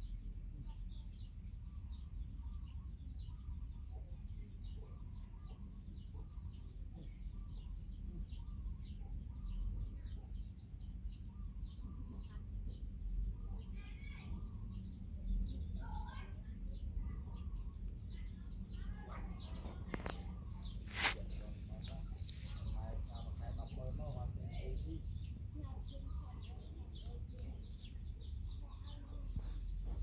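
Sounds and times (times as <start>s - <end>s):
small birds chirping: 0.0s - 30.0s.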